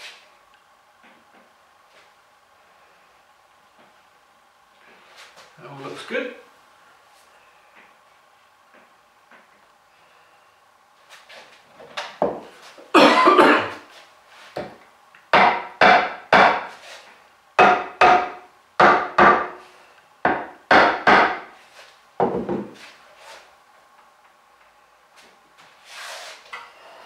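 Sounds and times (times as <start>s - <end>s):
mallet knocking on wood: 17.6s - 19.5s.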